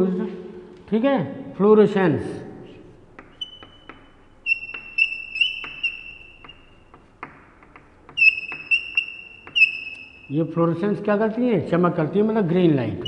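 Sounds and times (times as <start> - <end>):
chalk tapping: 2.7 - 10.3
chalk squeaking on blackboard: 2.9 - 10.4.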